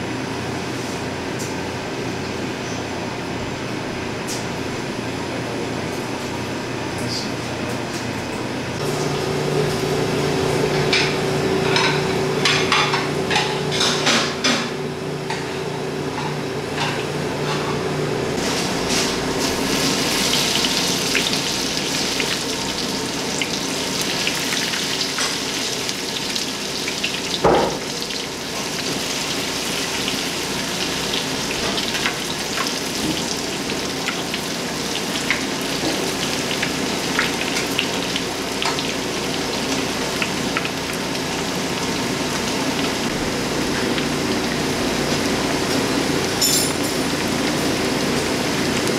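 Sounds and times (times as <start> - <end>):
hot oil sizzling: 18.3 - 48.9.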